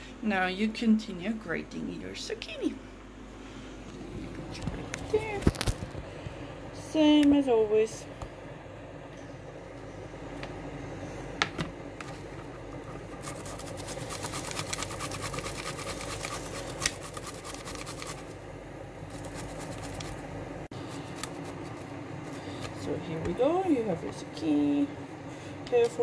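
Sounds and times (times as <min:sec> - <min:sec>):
steady low hum: 0:00.0 - 0:26.0
zucchini rasping on a grater: 0:12.8 - 0:18.4, 0:19.1 - 0:20.2.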